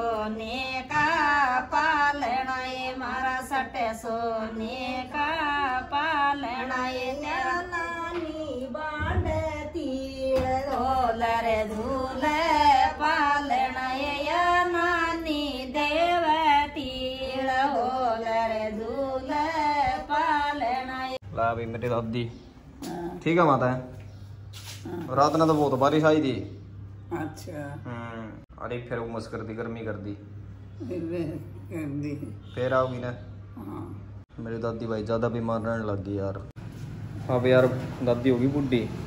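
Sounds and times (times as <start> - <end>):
woman singing: 0.0 - 21.2.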